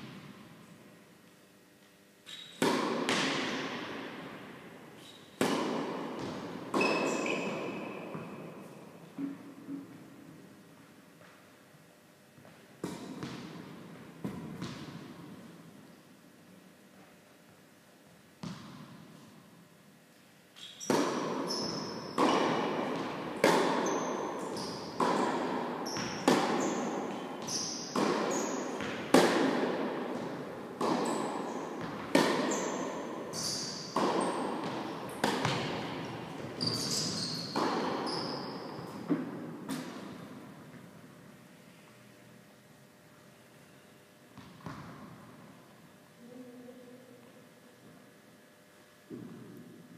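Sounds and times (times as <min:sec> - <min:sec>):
tennis balls struck and bouncing: 0:02.3 - 0:10.5, 0:12.4 - 0:15.8, 0:18.4 - 0:19.2, 0:20.8 - 0:41.2, 0:44.3 - 0:45.5, 0:49.1 - 0:49.8.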